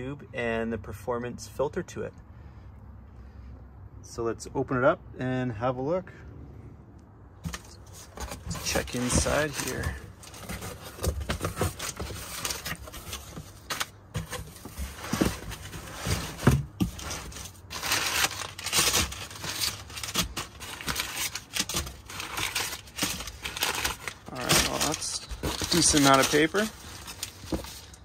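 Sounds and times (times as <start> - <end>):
packing paper rustling and crumpling: 7.4 - 28.0.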